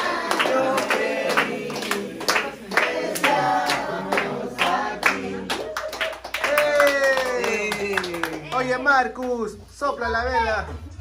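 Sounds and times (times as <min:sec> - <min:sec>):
group singing: 0:00.0 - 0:06.0.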